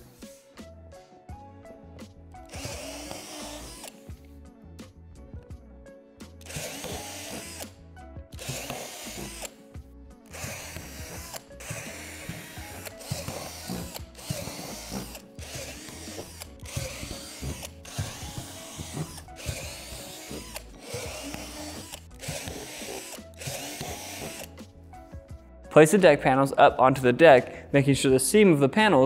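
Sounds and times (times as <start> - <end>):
cordless drill drilling plastic: 2.4 - 4.2, 6.4 - 9.6, 10.3 - 24.6.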